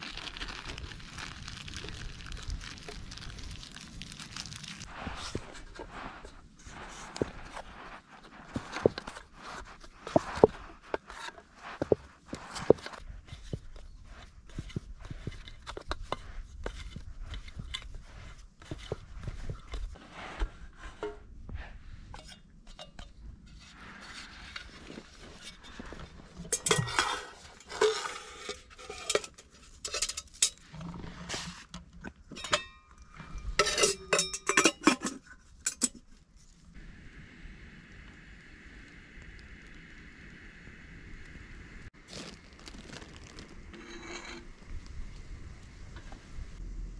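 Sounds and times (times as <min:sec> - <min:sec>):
metal cookware clinking and clattering: 0:26.5 - 0:30.6, 0:32.3 - 0:36.0.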